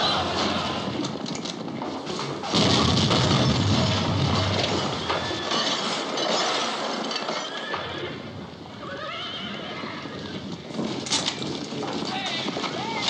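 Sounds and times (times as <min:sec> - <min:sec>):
explosion: 0:02.4 - 0:06.2
falling debris knocks: 0:02.4 - 0:07.4
horse whinnying: 0:04.7 - 0:10.6.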